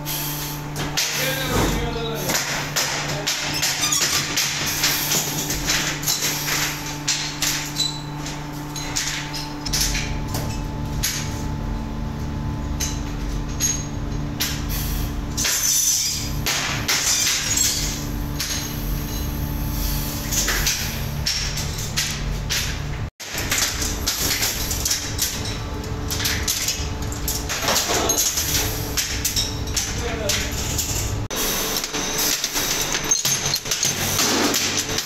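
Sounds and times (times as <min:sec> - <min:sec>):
steady hum: 0:00.0 - 0:35.0.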